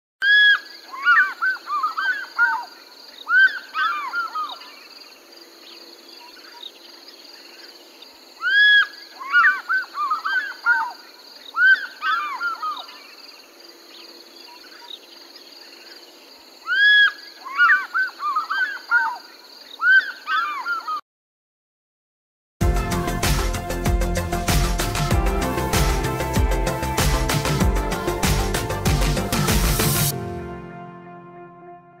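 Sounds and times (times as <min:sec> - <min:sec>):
eagle calling: 0:00.2 - 0:04.8, 0:08.4 - 0:13.1, 0:16.6 - 0:19.2, 0:19.8 - 0:21.0.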